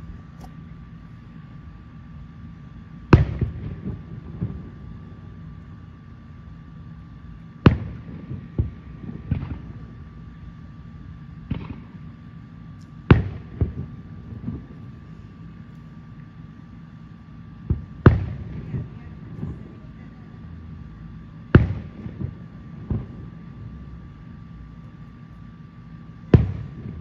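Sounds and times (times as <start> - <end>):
rumble after booms: 3.1 - 5.1, 11.4 - 12.1, 13.0 - 15.2, 21.4 - 24.8, 26.3 - 27.0
firework shells booming: 3.2 - 4.7, 7.7 - 9.8, 11.4 - 12.0, 13.1 - 14.8, 21.5 - 23.4, 26.3 - 27.0.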